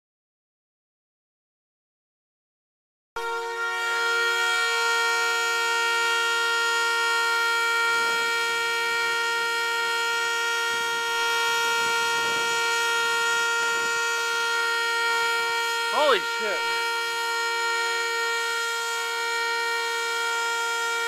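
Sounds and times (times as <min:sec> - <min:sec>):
two-tone vehicle horn: 0:03.2 - 0:21.0.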